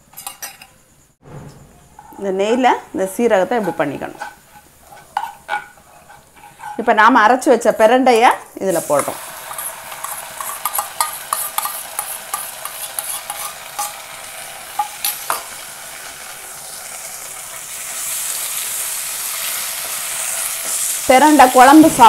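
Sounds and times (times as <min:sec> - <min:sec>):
metal spoon clicking and scraping: 0:00.1 - 0:00.8, 0:03.6 - 0:06.9, 0:09.5 - 0:14.1
paste sizzling in hot oil: 0:02.0 - 0:07.9, 0:08.6 - 0:22.0.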